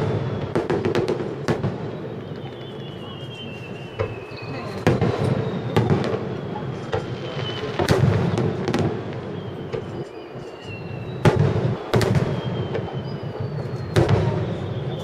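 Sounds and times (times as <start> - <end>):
firework shells booming: 0.0 - 15.0.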